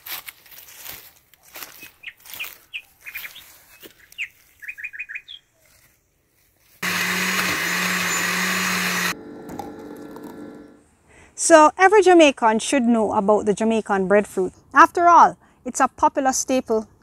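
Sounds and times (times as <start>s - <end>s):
small birds chirping: 1.5s - 6.2s
electric blender running: 6.8s - 10.8s.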